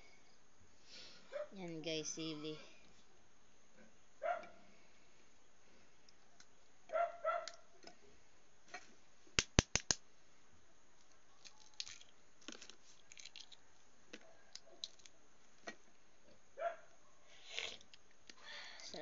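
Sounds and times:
sharp taps on eggshell: 9.4 - 10.0
shell crackling: 9.4 - 10.0.

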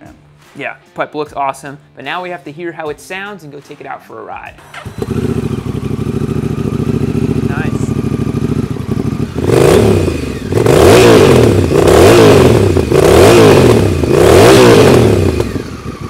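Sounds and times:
motorcycle engine idling and revving: 4.6 - 16.0.

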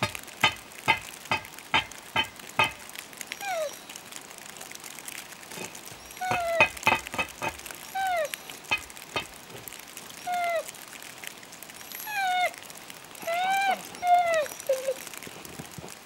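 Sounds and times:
dog yelping: 2.2 - 4.0, 5.6 - 9.3, 10.1 - 10.8, 11.9 - 15.2.

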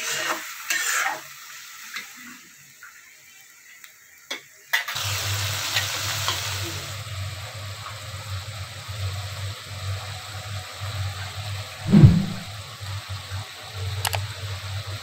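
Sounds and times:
curry boiling and sizzling: 0.0 - 9.4
thump: 11.9 - 12.4
low hum: 11.9 - 12.5.

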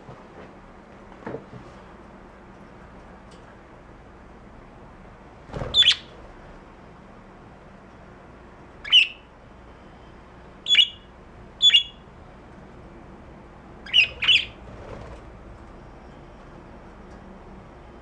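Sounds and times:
budgerigars squawking: 5.8 - 6.1, 8.8 - 9.2, 10.7 - 11.0, 11.6 - 12.0, 13.8 - 14.6.

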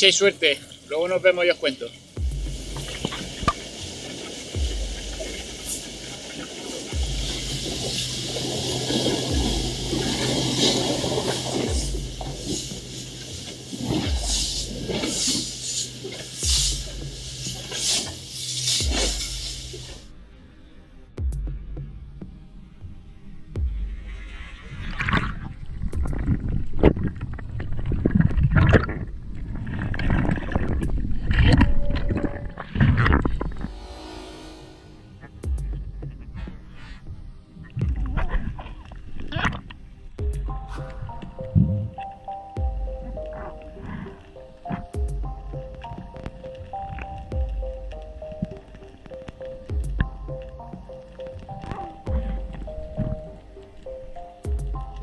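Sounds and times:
background music with bass: 0.0 - 27.1, 30.6 - 55.0
water rushing past boat: 0.1 - 20.1
wind on microphone: 23.7 - 33.9.

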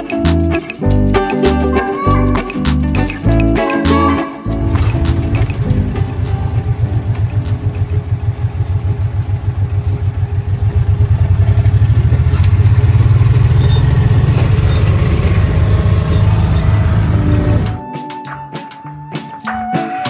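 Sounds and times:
small vehicle engine running: 4.5 - 17.8.

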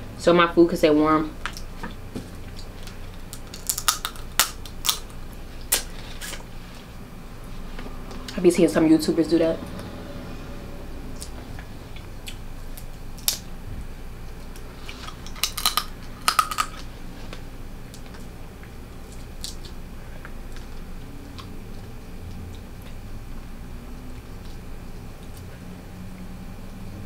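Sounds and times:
crab shell cracking: 3.2 - 5.9, 15.1 - 16.9.

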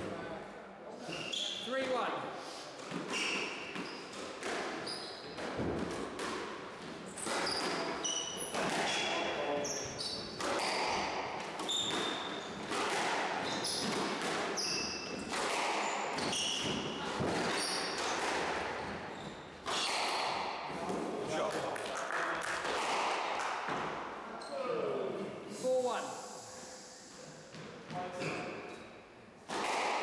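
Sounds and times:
squash ball hits: 2.9 - 9.6, 10.2 - 19.0, 19.6 - 21.5, 22.6 - 24.0, 29.5 - 30.0
shoes squeaking on wooden floor: 3.0 - 5.7, 6.8 - 10.9, 11.6 - 12.7, 13.4 - 15.3, 16.1 - 20.2.

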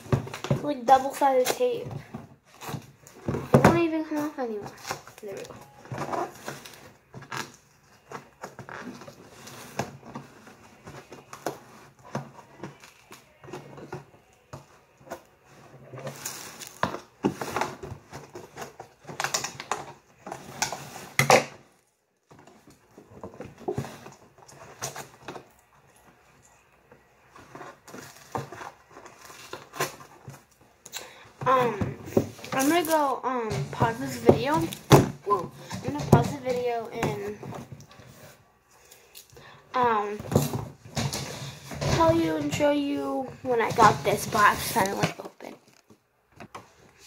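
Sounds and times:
crinkling: 0.0 - 47.0
tape tearing: 32.4 - 33.1.

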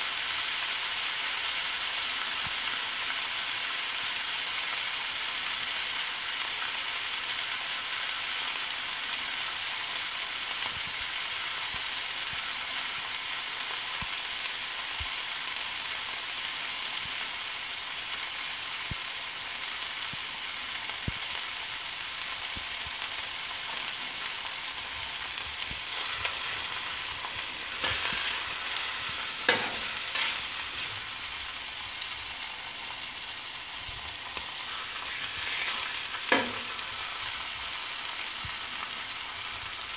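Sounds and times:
meat sizzling on a griddle: 0.0 - 39.9
scrapes and knocks on griddle: 27.8 - 28.4, 29.4 - 31.0, 35.0 - 36.8.

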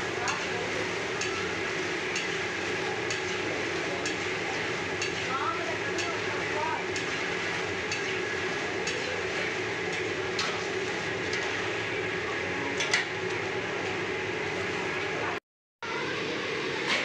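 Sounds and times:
oil sizzling: 0.0 - 15.2.

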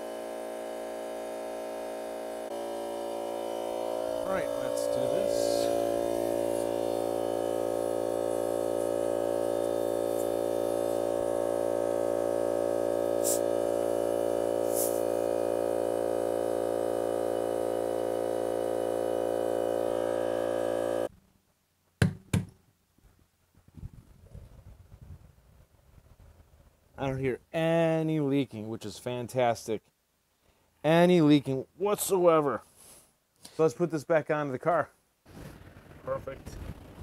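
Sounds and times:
air compressor running: 0.0 - 21.1, 35.3 - 37.0
sharp knocks: 22.0 - 22.6.

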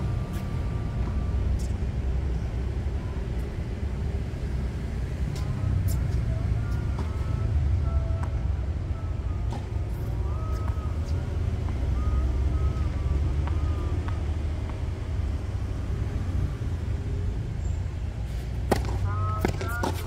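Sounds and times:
low outdoor background rumble: 0.0 - 20.0
tennis ball bouncing on hard court: 18.6 - 20.0.

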